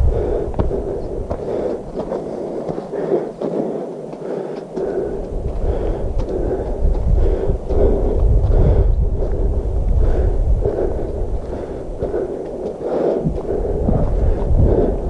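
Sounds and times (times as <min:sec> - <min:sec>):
footsteps on dirt trail: 0:00.0 - 0:15.0
wind buffeting microphone: 0:00.0 - 0:15.0.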